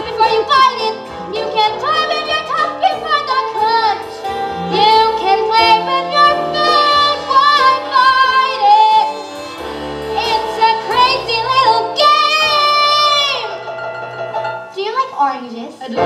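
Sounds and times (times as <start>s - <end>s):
instrumental accompaniment: 0.0s - 15.3s
child singing: 4.7s - 9.1s, 10.2s - 13.6s.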